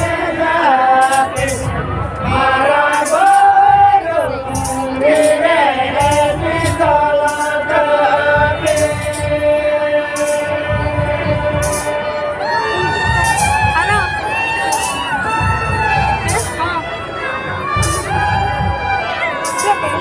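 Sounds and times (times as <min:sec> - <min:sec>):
men singing together: 0:00.0 - 0:13.7
barrel drums beating: 0:00.0 - 0:20.0.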